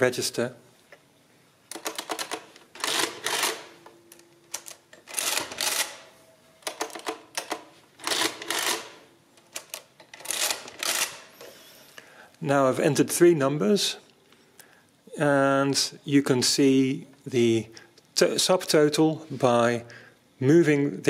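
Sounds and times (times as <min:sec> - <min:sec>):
hand crank mechanism clattering: 0:01.7 - 0:03.7, 0:04.5 - 0:11.4.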